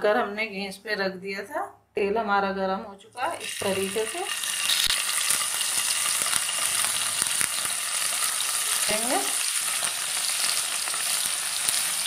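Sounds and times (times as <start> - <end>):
food sizzling in hot oil: 3.2 - 12.0.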